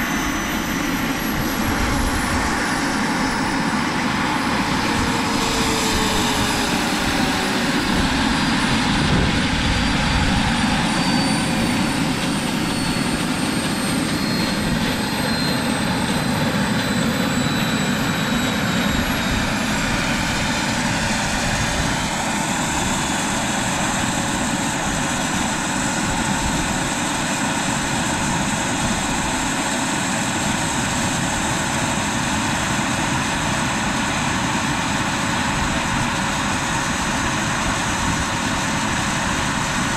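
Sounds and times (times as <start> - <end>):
model turbine engine whine: 0.0 - 39.9.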